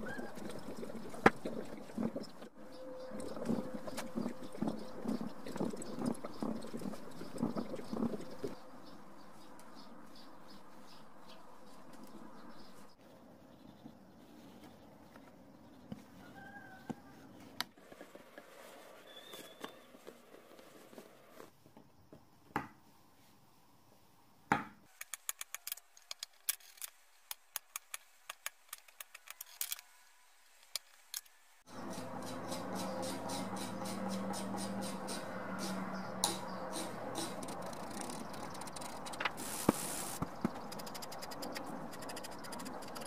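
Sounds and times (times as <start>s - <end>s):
carving tools clicking and scraping: 24.9s - 29.8s, 30.6s - 39.4s, 40.1s - 43.0s.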